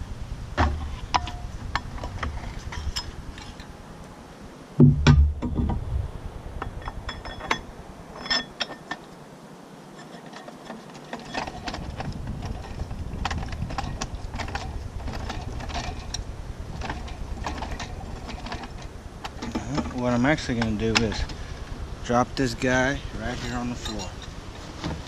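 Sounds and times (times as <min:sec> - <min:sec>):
low rumble: 0:04.8 - 0:08.1, 0:11.9 - 0:25.0
metal parts clicking: 0:10.0 - 0:21.4.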